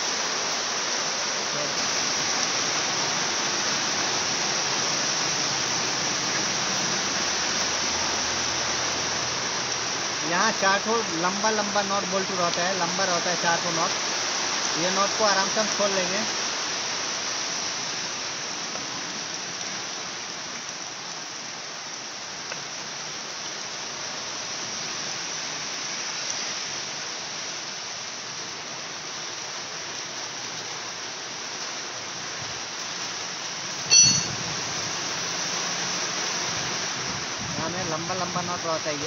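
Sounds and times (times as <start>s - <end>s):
wrench clinking on metal: 33.9s - 34.4s.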